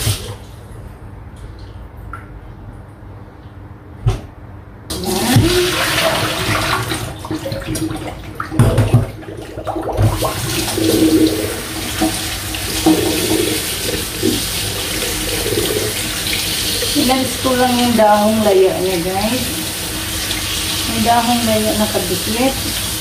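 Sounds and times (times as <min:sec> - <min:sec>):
tap running water: 0:04.9 - 0:23.0.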